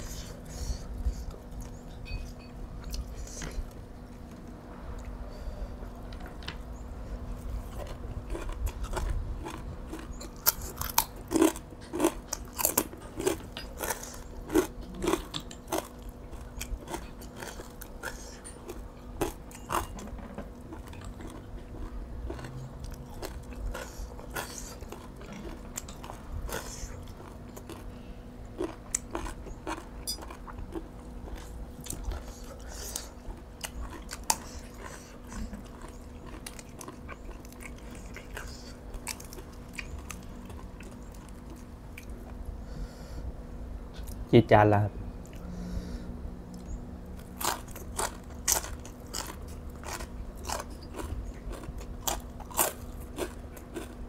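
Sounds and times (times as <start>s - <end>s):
person crunching food: 7.4s - 42.4s, 46.5s - 54.0s.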